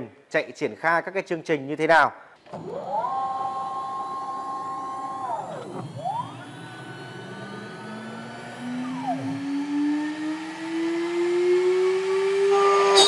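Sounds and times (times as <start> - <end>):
spindle motor whine rising: 2.6 - 13.0.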